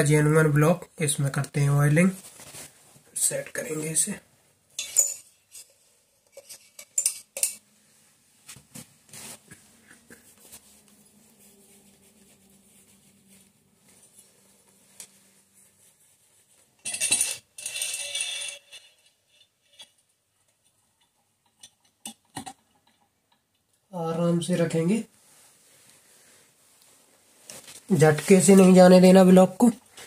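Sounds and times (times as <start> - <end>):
scraping rustling noise: 2.0 - 4.2, 4.8 - 16.8, 25.0 - 30.0
metal clinks and taps: 6.3 - 7.6.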